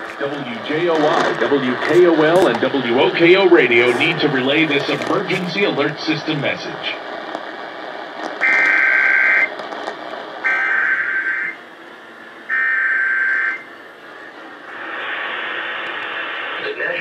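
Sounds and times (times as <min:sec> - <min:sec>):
radio hiss: 0:00.0 - 0:17.0
buzzing digital data tones: 0:08.4 - 0:09.5, 0:10.5 - 0:11.6, 0:12.5 - 0:13.6.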